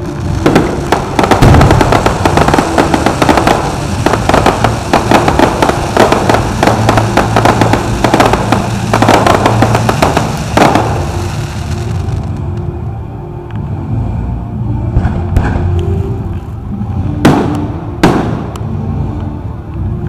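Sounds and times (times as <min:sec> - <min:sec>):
loud fireworks bangs: 0:00.0 - 0:12.3, 0:17.2 - 0:18.6
fireworks crackling and popping: 0:00.0 - 0:12.8, 0:17.2 - 0:18.7.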